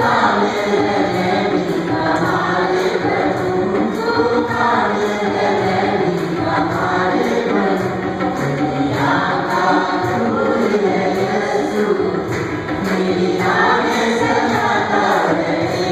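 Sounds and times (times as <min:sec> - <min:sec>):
choir singing a hymn: 0:00.0 - 0:15.9.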